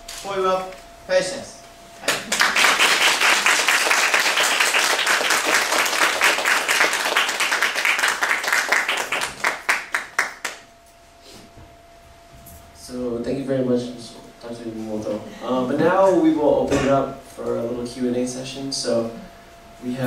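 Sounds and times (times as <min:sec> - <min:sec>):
audience applauding: 0:02.1 - 0:10.6.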